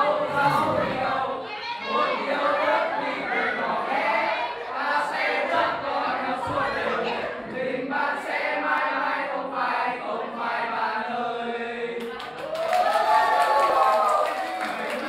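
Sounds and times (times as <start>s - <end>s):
group of students singing: 0.0s - 12.4s.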